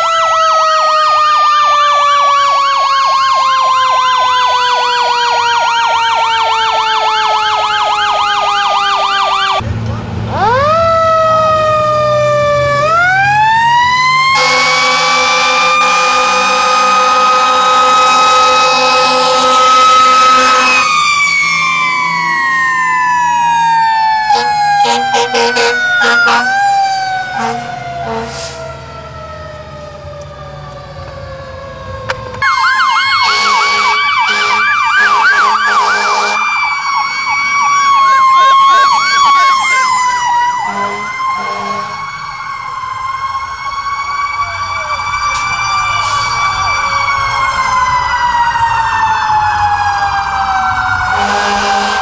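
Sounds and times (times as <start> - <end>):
electronic siren yelp: 0.0 - 9.6, 10.3 - 52.0
siren wail: 0.0 - 52.0
mechanical siren winding down: 10.3 - 51.9
air horn blasts: 14.3 - 21.0, 24.3 - 26.6, 27.3 - 28.6, 33.2 - 36.5, 40.6 - 42.0, 51.2 - 52.0.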